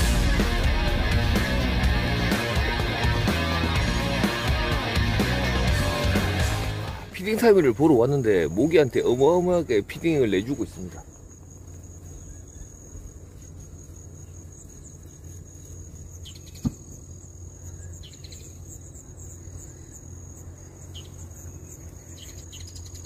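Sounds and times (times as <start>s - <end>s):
insects chirring: 0.0s - 23.0s
bird chirps: 15.6s - 20.1s, 20.8s - 23.0s.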